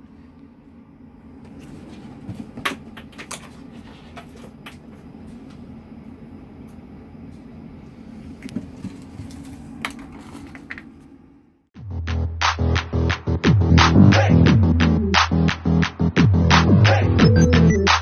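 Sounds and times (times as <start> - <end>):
steady low hum: 0.0 - 11.7.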